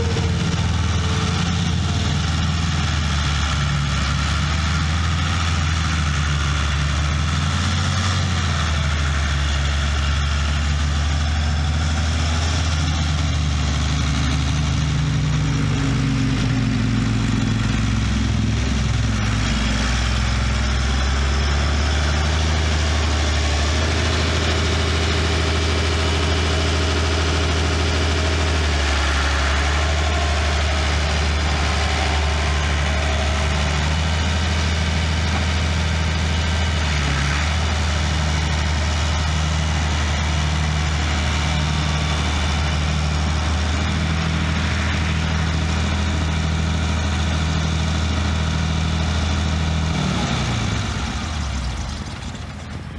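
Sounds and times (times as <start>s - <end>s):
tractor diesel engine idling: 0.0s - 52.9s.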